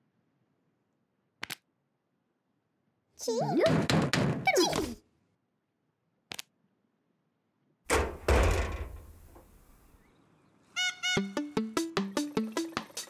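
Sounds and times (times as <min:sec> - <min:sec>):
plucked musical notes: 0:11.2 - 0:13.0.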